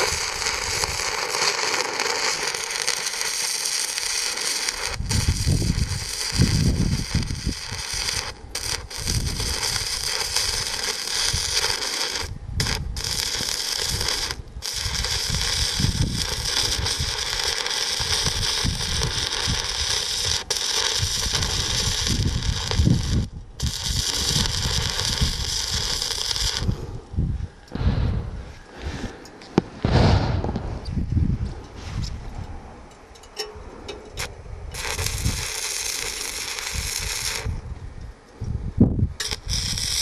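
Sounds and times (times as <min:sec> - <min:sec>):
welding arc crackling: 0:00.0 - 0:26.8, 0:34.2 - 0:37.6, 0:39.2 - 0:40.0.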